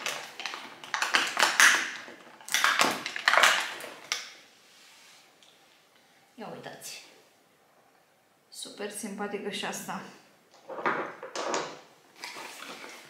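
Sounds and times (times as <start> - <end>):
cardboard crinkling and scraping: 12.1 - 13.0.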